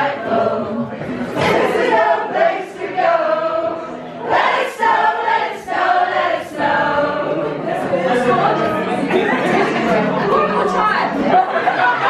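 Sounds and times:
acoustic guitar: 0.0 - 12.0
crowd singing along: 0.0 - 12.0.

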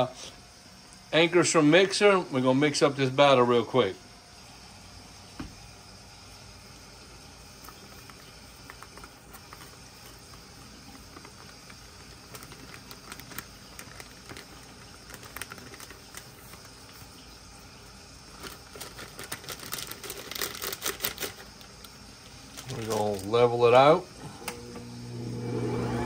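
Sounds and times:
batter clicks and crackles: 7.2 - 23.6
stand mixer humming: 21.4 - 26.0.

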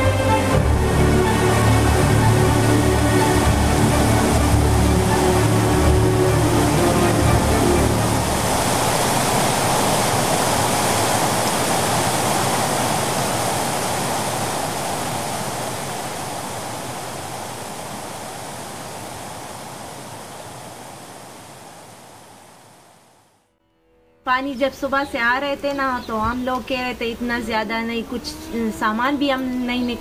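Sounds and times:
floodwater rushing: 0.0 - 23.1.

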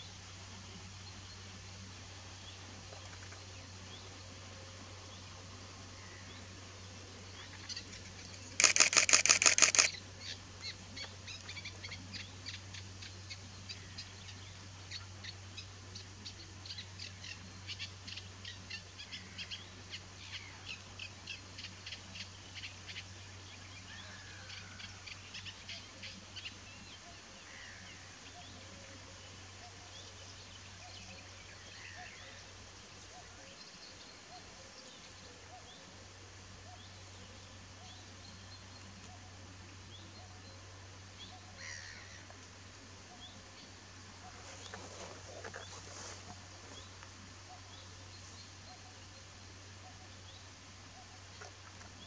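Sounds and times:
small birds chirping: 5.0 - 23.1, 36.6 - 52.0
camera shutter burst: 8.4 - 10.0.

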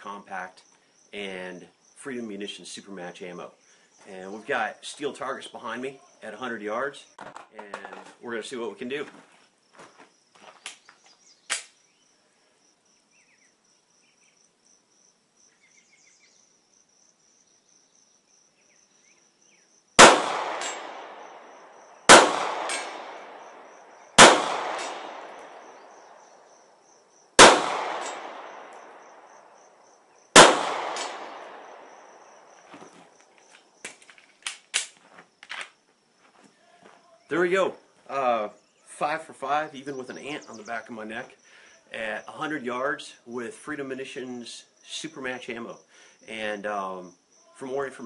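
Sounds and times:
pistol shots with echo: 20.0 - 25.8, 27.4 - 29.4, 30.3 - 32.4.

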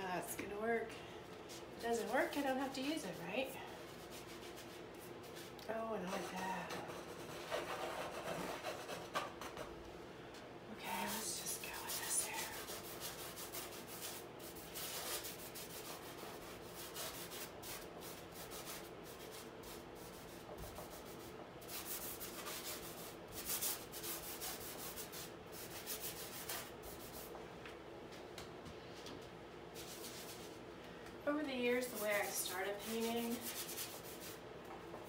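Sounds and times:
paintbrush scrubbing on canvas: 1.5 - 9.1, 10.9 - 27.3, 29.8 - 30.6, 31.7 - 34.4.

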